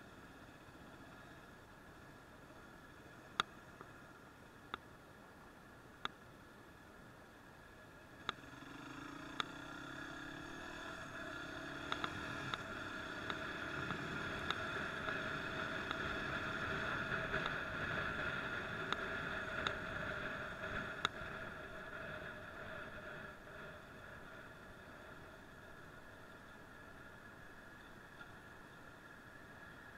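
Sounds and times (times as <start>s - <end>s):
motorcycle engine: 8.3s - 25.4s.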